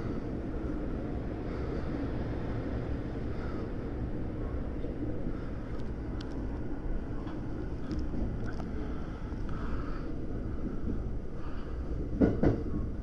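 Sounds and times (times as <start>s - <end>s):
electric train rumbling: 0.0s - 13.0s
faint clicks: 5.7s - 6.4s.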